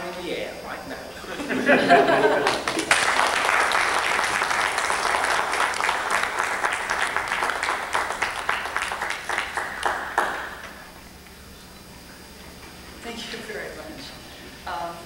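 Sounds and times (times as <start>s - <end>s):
audience applauding: 2.1s - 10.9s.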